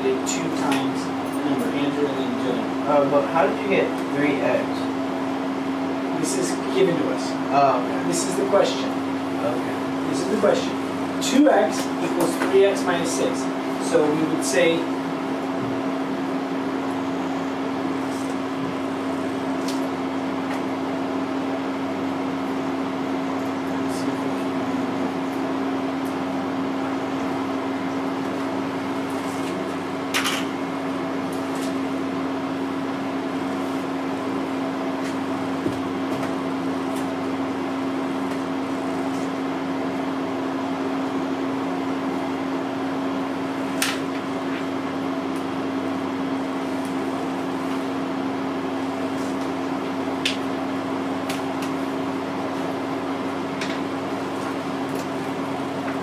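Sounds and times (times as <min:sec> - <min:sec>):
steady mechanical hum: 0:00.0 - 0:56.0.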